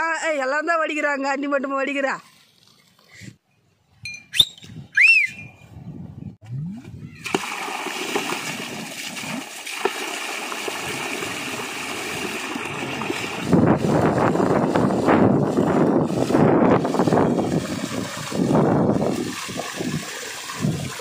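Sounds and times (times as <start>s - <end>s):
whistle-like chirps: 4.1s - 5.7s
water poured onto ground: 7.2s - 21.0s.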